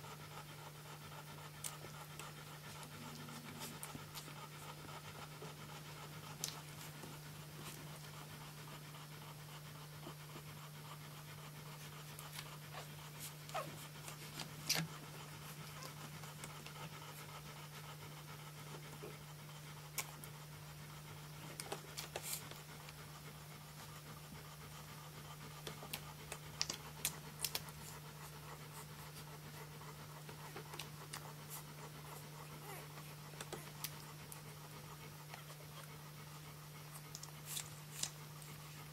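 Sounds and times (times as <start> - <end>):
dog panting: 0.0 - 38.9.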